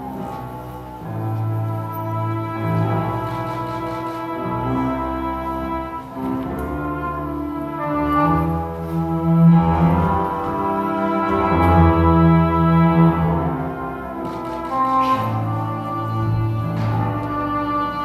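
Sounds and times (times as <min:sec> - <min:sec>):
orchestra with brass chords: 0:00.0 - 0:18.0.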